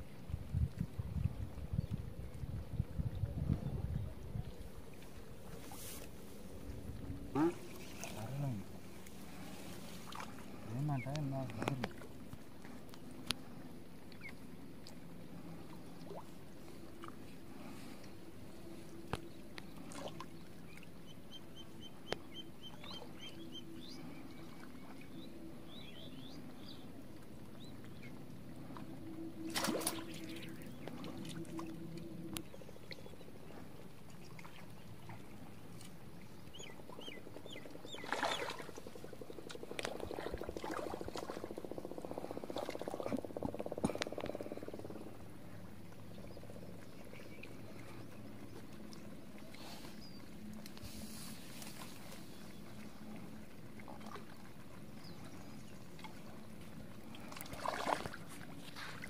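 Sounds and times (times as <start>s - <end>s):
frogs calling: 36.5s - 45.5s.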